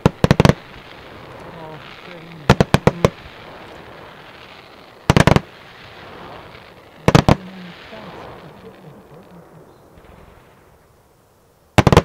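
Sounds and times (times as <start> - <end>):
faint hiss: 0.0 - 12.0
fireworks bangs: 0.0 - 12.0.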